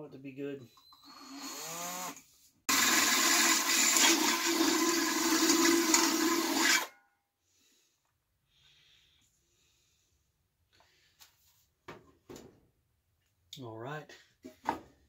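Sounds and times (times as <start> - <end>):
drill boring through steel: 0.9 - 6.9.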